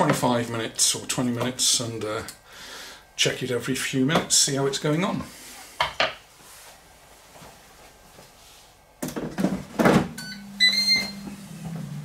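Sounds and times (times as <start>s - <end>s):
fan humming: 0.0s - 12.0s
control panel beeps: 10.2s - 11.2s.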